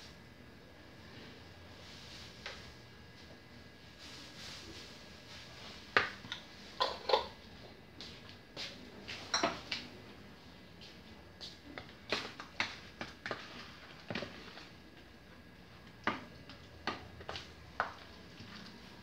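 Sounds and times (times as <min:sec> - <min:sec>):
kitchen items knocking and clinking: 0:09.3 - 0:09.7.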